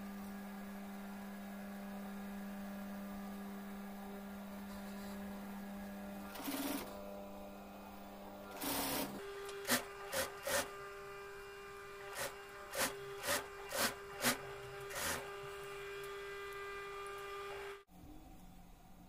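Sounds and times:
steady machine hum: 0.0 - 19.0
sewing machine stitching: 6.2 - 7.0, 8.5 - 10.8, 12.0 - 17.8.

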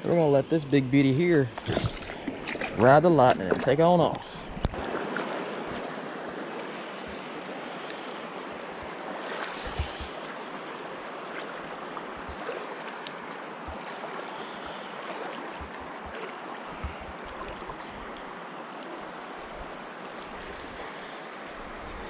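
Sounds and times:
river water rippling over rocks: 1.0 - 22.0
soft low bumps: 15.5 - 17.5.

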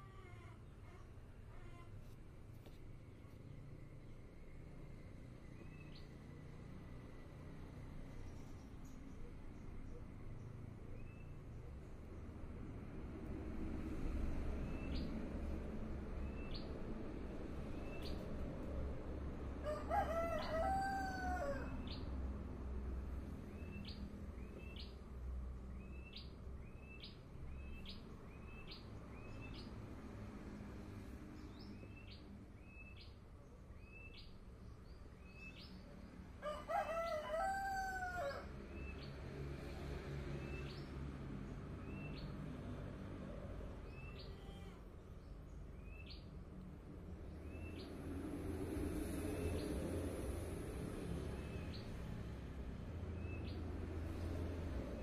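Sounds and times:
rooster crowing: 19.6 - 21.9, 36.4 - 38.5.

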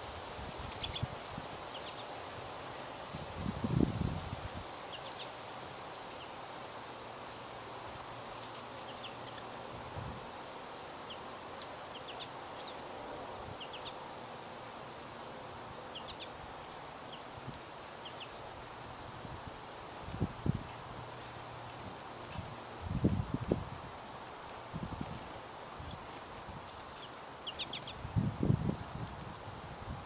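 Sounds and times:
steady outdoor hiss: 0.0 - 30.0
finches chirping: 0.7 - 1.1, 1.7 - 2.2, 11.9 - 12.9, 13.6 - 14.0, 15.9 - 16.4, 18.0 - 18.4, 22.2 - 22.6, 27.0 - 28.0.

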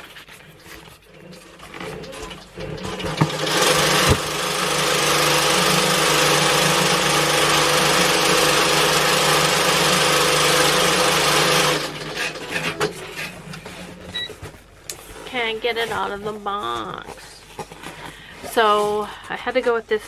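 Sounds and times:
sewing machine running: 1.4 - 12.9.

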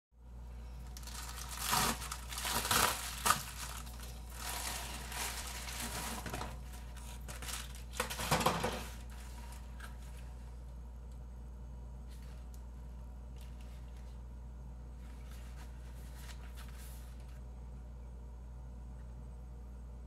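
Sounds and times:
plastic mailer crinkling: 0.8 - 10.4.

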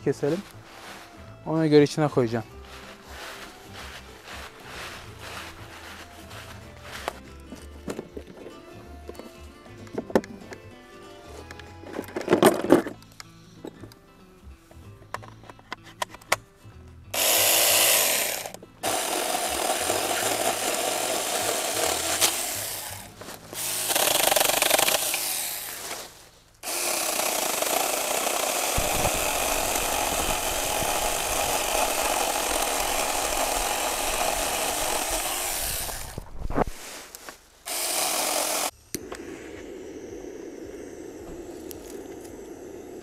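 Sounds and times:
power saw cutting logs: 17.1 - 36.2, 37.6 - 43.0.

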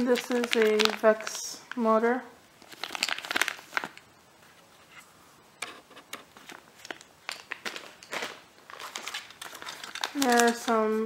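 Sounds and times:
plastic bag crinkling: 0.0 - 1.6, 2.6 - 4.0, 6.2 - 11.0.

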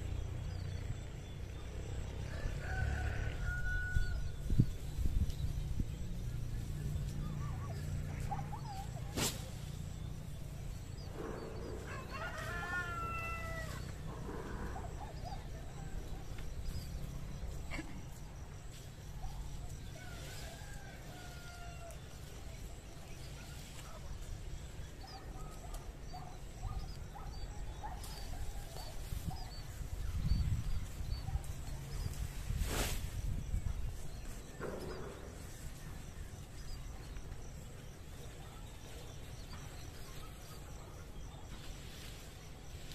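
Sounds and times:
rooster crowing: 2.2 - 4.4, 11.8 - 14.2, 19.9 - 22.0
small birds chirping: 3.4 - 42.9
steady low rumble: 4.0 - 12.1.

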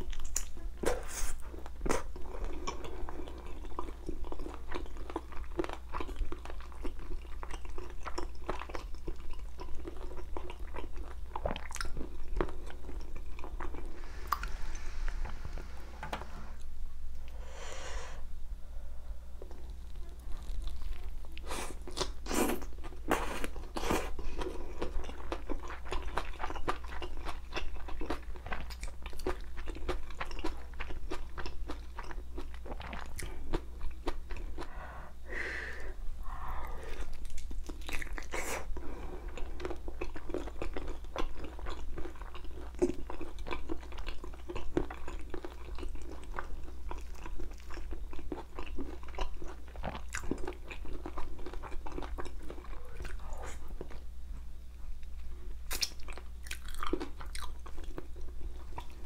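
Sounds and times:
chewing and crunching: 0.0 - 13.9, 19.4 - 34.8, 36.9 - 54.0, 55.0 - 59.0
wet mouth sounds: 55.7 - 57.4.

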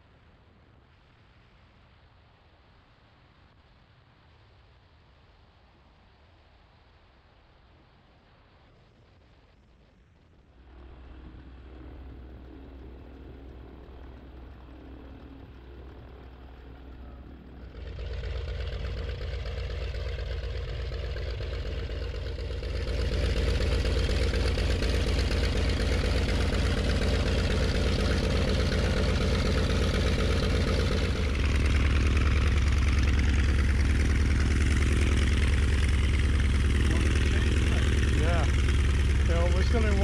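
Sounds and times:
light aircraft engine running: 8.6 - 40.0.

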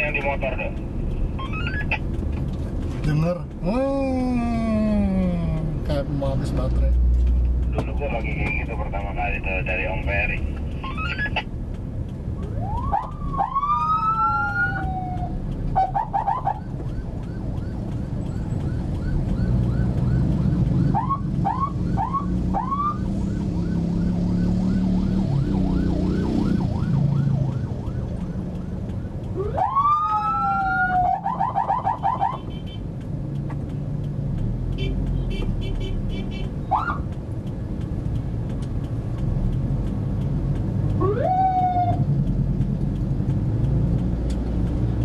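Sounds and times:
engine and traffic rumble: 0.0 - 45.0
electronic siren whooping: 12.4 - 32.4, 41.0 - 42.0.

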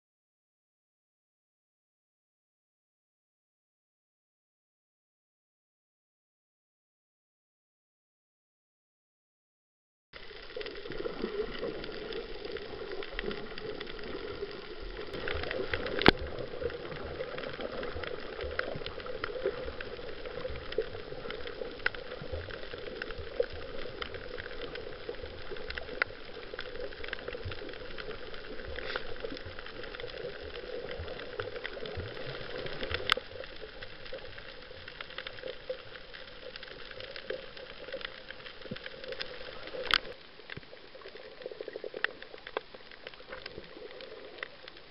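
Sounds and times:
underwater crackle of clicks: 10.2 - 44.9.

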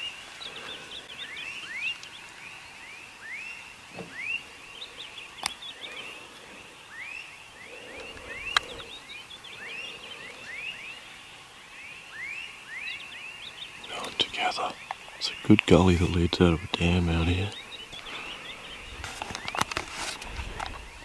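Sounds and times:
chorus of rising animal chirps: 0.0 - 15.5.

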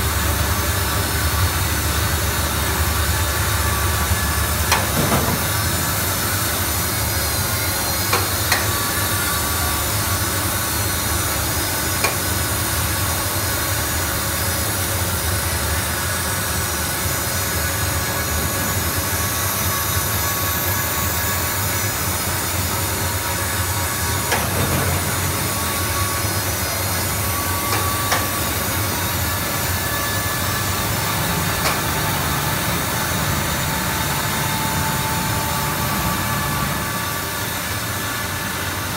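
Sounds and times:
machine hiss and hum: 0.0 - 38.9.

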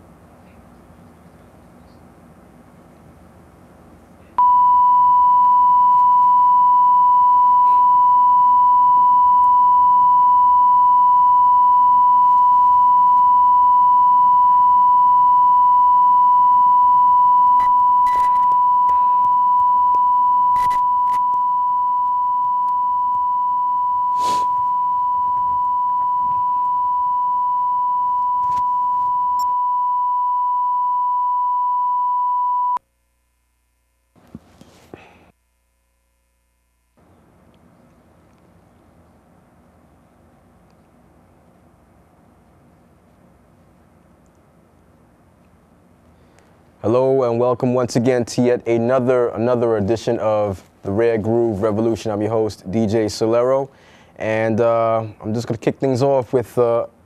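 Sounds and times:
pure reference test tone: 4.4 - 32.8
faint clicks: 44.0 - 44.5.

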